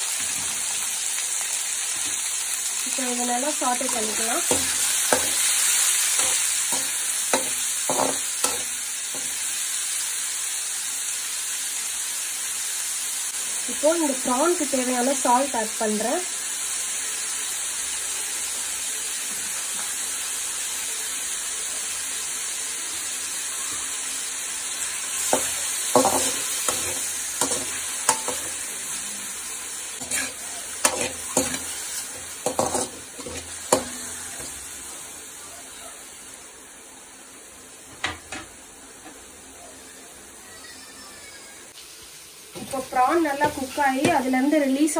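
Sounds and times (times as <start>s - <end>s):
prawns sizzling in oil: 0.0s - 44.9s
metal spatula scraping a pan: 3.7s - 9.4s, 25.2s - 29.0s, 30.0s - 34.7s, 42.6s - 44.3s.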